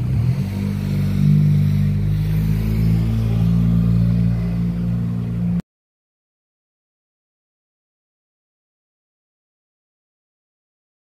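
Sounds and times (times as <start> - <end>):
vehicle engine humming: 0.0 - 5.6.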